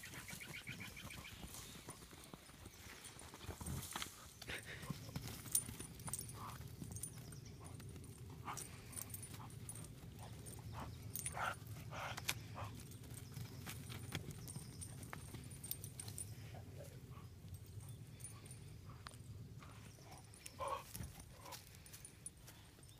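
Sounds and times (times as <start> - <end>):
dog sounds: 20.0 - 21.6.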